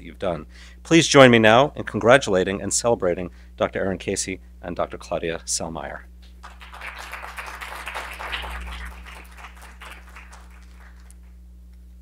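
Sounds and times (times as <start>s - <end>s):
low electrical hum: 0.0s - 12.0s
audience applauding: 6.4s - 11.4s.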